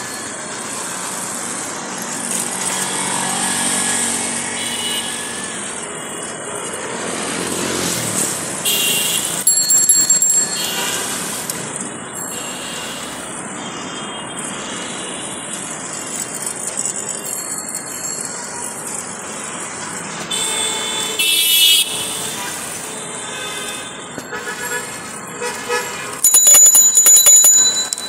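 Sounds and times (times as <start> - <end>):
road traffic rumble: 0.0 - 28.0
vehicle horn: 4.6 - 5.6, 8.6 - 9.4, 20.3 - 26.3.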